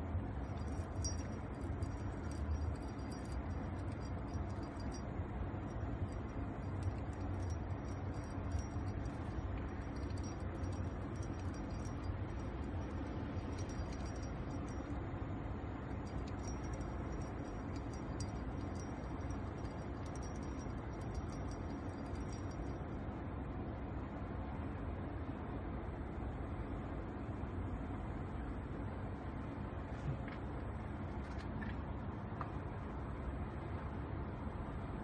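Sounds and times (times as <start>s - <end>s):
low outdoor rumble: 0.0s - 35.0s
faint light clinks: 0.3s - 23.0s.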